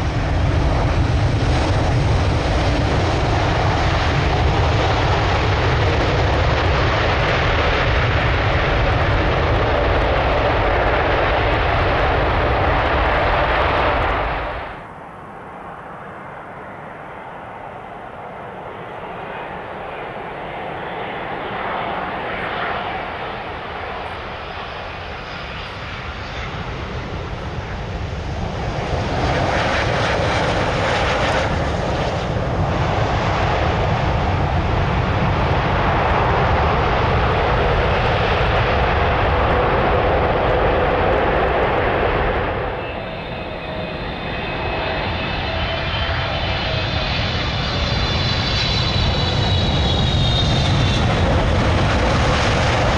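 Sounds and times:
jet engines rushing: 0.0s - 52.9s.

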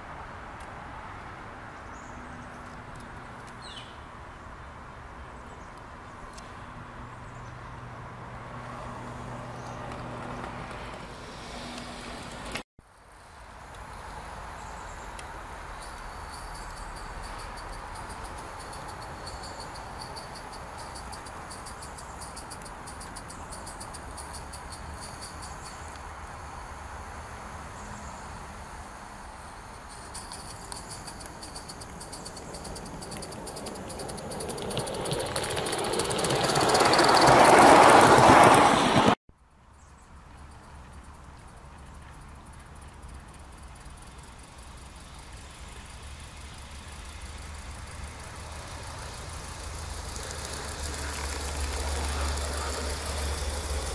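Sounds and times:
crickets chirping: 11.1s - 38.5s, 39.8s - 53.9s
model steam engine clattering: 30.2s - 39.2s, 47.9s - 53.9s.

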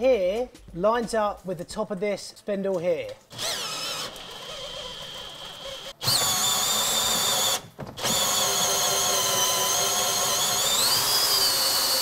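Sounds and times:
cordless drill whine: 3.3s - 12.0s.

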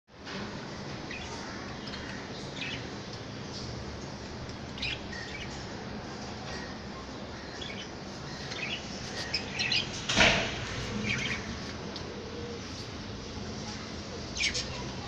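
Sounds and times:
steady background noise: 0.1s - 15.0s.

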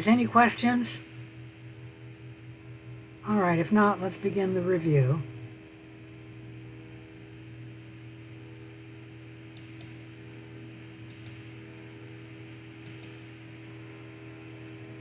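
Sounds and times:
low electrical hum: 0.0s - 15.0s
computer mouse clicking: 9.5s - 10.0s, 11.1s - 11.4s, 12.8s - 13.2s.

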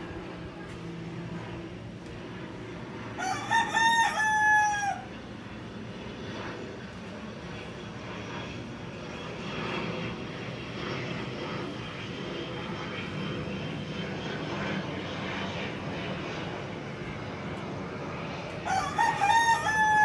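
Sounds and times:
distant aircraft drone: 0.0s - 20.0s
rooster crowing: 3.2s - 5.1s, 18.6s - 20.0s.

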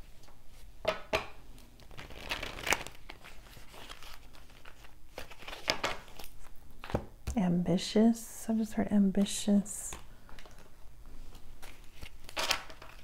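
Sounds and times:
cards rustling: 1.7s - 7.1s, 9.9s - 13.0s.

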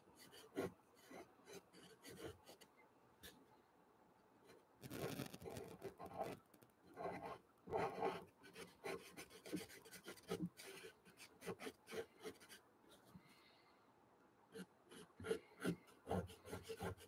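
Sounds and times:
pencil scratching on paper: 0.2s - 2.6s, 4.9s - 6.4s, 7.0s - 12.6s, 14.6s - 17.0s.

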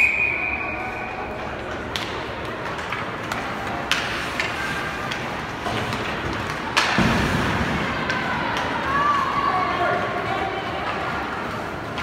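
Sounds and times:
arena crowd din: 0.0s - 12.0s
hockey sticks and puck knocking: 1.4s - 9.3s.

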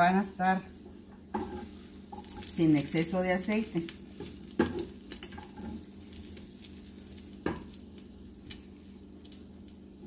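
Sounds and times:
patties sizzling in oil: 0.0s - 10.0s
spatula knocking against pan: 4.2s - 5.8s.

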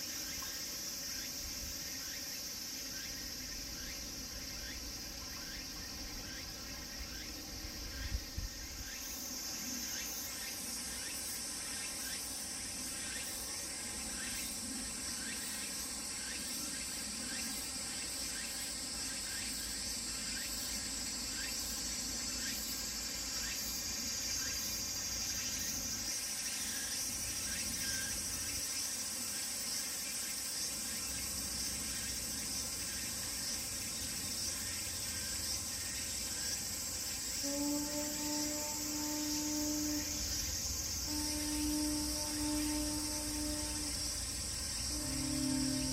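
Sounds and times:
cicadas shrilling: 0.0s - 45.9s.

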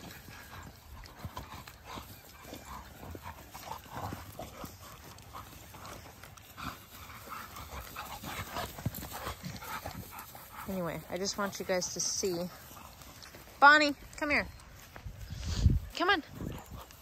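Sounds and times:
dogs growling playfully: 0.0s - 13.3s
paws scuffling on grass: 0.0s - 17.0s.

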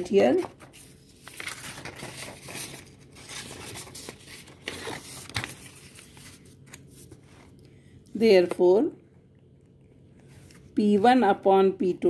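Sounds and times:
paper rustling: 0.2s - 7.6s.

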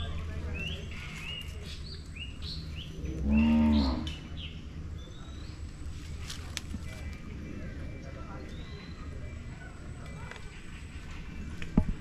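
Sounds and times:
birds chirping: 0.0s - 12.0s
cow mooing: 3.1s - 4.1s.

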